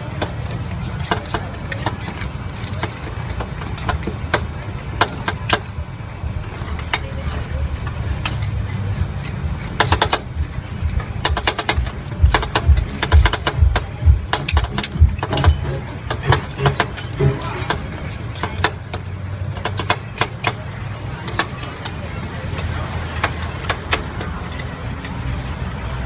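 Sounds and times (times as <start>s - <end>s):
steady low hum: 0.0s - 24.9s
metal spatulas scraping steel pan: 14.3s - 20.6s.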